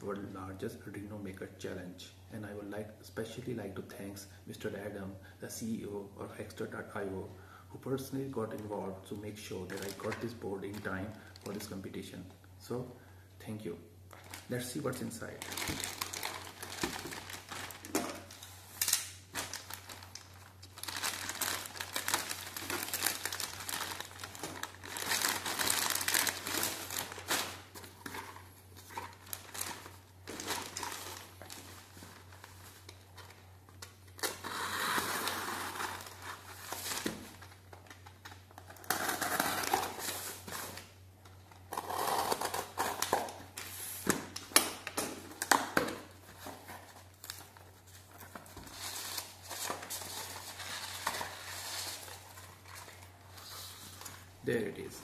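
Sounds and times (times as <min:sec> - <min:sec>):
plastic mailer bag crinkling: 0:14.1 - 0:33.4.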